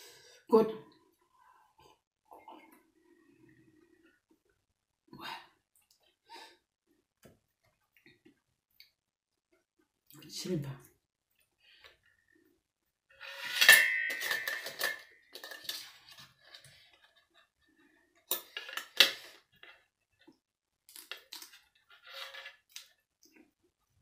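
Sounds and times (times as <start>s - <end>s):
cutlery clinking on metal tray: 13.4s - 15.9s.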